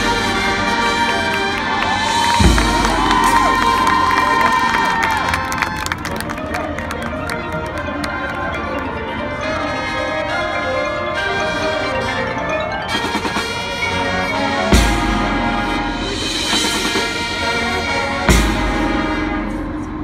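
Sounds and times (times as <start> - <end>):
marching band playing: 0.0 - 20.0
loud full-band hits: 1.6 - 4.8, 14.5 - 20.0
marimbas and mallet percussion: 6.3 - 17.2.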